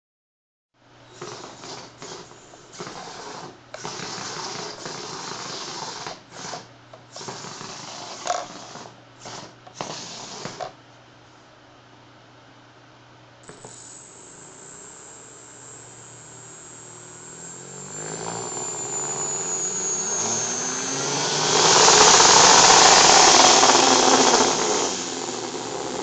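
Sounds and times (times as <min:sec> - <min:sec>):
robot motors whirring: 0:01.2 - 0:10.7, 0:13.5 - 0:26.0
faint hum: 0:08.2 - 0:22.3.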